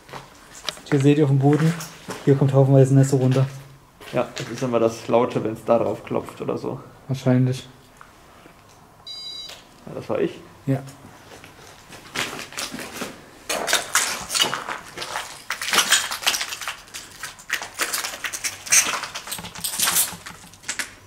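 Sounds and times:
footsteps crunching over rubble: 0.0s - 6.2s, 11.0s - 21.0s
debris crackling and clinking: 13.5s - 21.0s.

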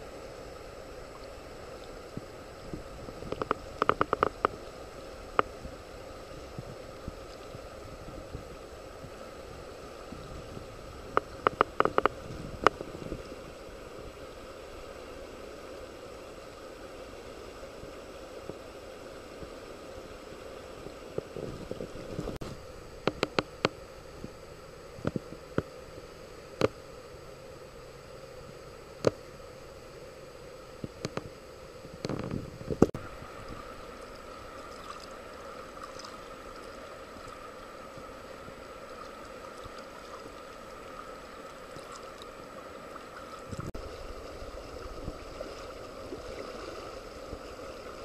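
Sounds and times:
river water running over stones: 0.0s - 23.8s, 32.1s - 48.0s.

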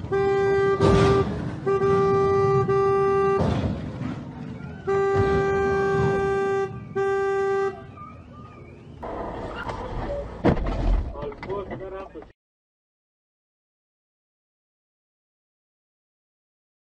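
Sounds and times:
car horn blasts: 0.0s - 3.6s, 4.8s - 8.1s
loud noisy thumps: 0.7s - 2.1s, 3.3s - 4.2s, 10.4s - 11.3s.

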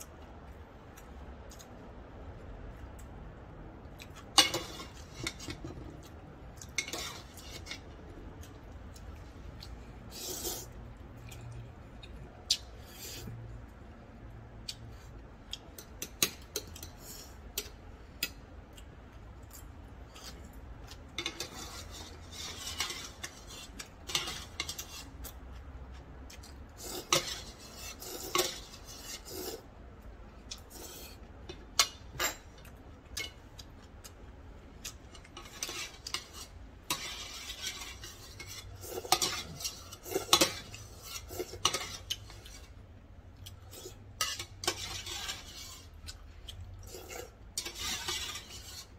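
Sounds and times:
metal chopsticks scraping a pot: 6.7s - 7.9s, 21.1s - 25.3s, 26.8s - 29.6s, 35.1s - 42.7s, 43.7s - 46.2s, 46.8s - 48.9s.

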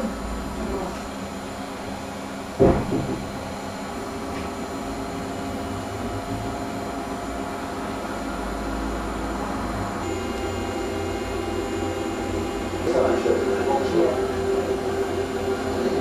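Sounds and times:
equipment hum and fan noise: 0.0s - 16.0s
loud thump: 2.6s - 3.4s.

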